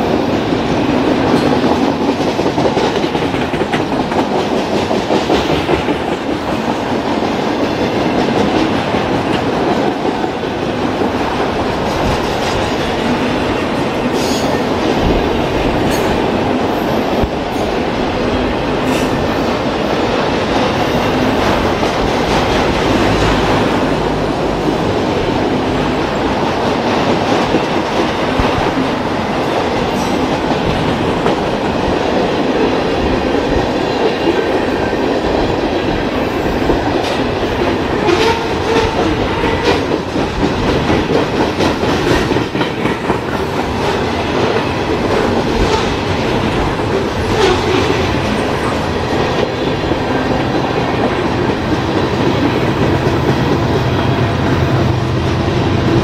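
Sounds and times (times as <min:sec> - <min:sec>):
freight train wheels rumbling: 0:00.0 - 0:56.0.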